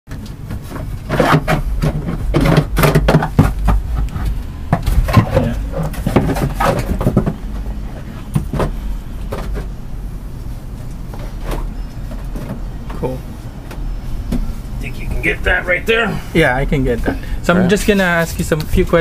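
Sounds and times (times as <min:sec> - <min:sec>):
knocks and clatter of parts: 0:00.1 - 0:09.8
low steady rumble: 0:00.1 - 0:19.0.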